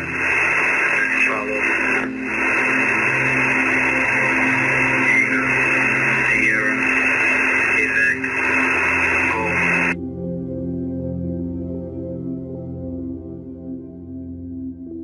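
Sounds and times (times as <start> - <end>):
radio static hiss: 0.0 - 10.0
steady hum: 0.0 - 10.0
soft ambient music: 0.0 - 15.0.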